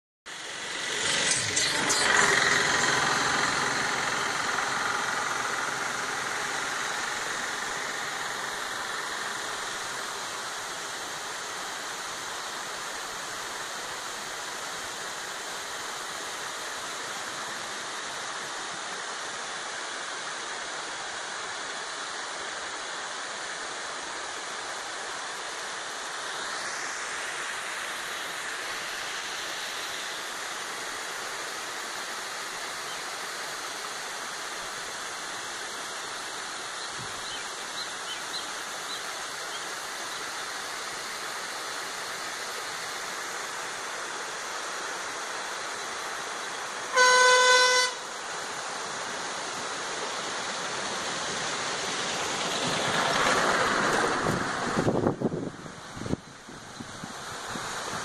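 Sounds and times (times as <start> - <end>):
mechanical drone: 0.3 - 11.0.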